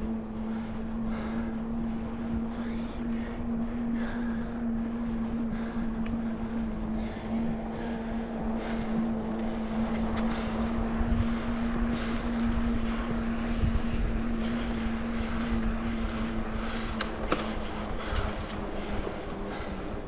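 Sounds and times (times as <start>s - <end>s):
steady hum: 0.0s - 20.0s
wind noise on microphone: 7.2s - 18.5s.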